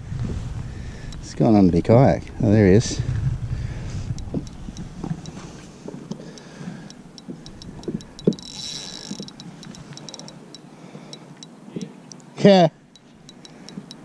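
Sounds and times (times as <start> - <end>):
fishing reel ticking: 4.1 - 12.3, 12.9 - 14.0.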